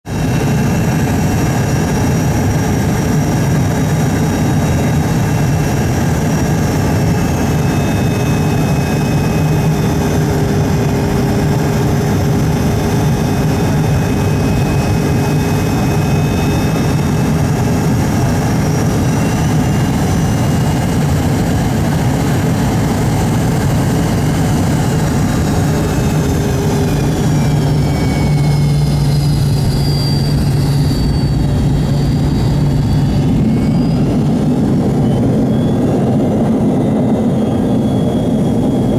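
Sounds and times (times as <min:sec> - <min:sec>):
jet engine and airflow noise: 0:00.0 - 0:38.9
low hum: 0:00.1 - 0:38.9
high whines sliding down: 0:22.5 - 0:38.9.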